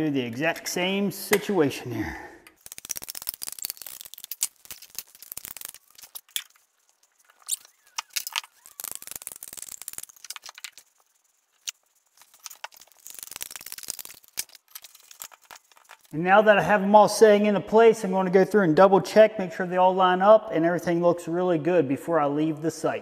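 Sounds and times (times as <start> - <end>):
caulking gun clicking and squeaking: 2.6 - 16.2.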